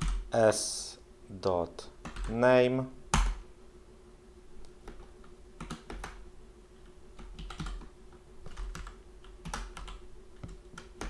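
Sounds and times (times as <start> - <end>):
computer keyboard typing: 0.0 - 0.3, 2.0 - 2.4, 3.1 - 3.4, 4.8 - 6.2, 7.2 - 11.0.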